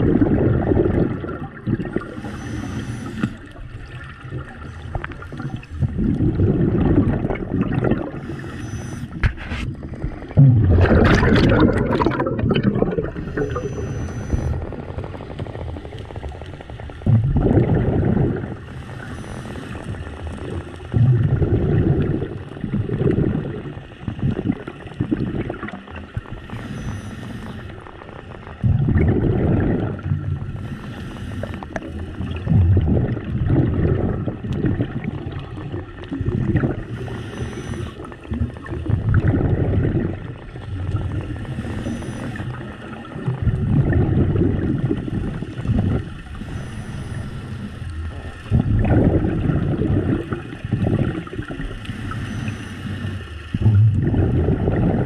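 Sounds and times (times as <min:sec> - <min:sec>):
exhaled bubbles gurgling underwater: 0:00.0 - 0:55.0
regulator inhalation hiss: 0:02.2 - 0:03.4, 0:08.2 - 0:09.2, 0:13.2 - 0:14.6, 0:18.7 - 0:20.0, 0:26.5 - 0:27.8, 0:30.6 - 0:31.8, 0:36.9 - 0:38.1, 0:41.6 - 0:42.6, 0:46.4 - 0:47.9, 0:51.9 - 0:53.2.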